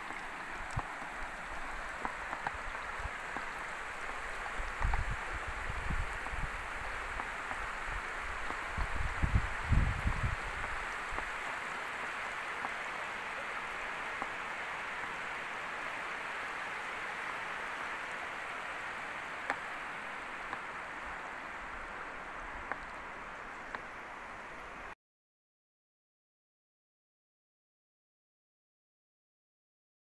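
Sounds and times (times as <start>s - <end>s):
faint clicks: 0.0s - 5.1s, 22.6s - 23.9s
water rushing over weir: 0.0s - 24.9s.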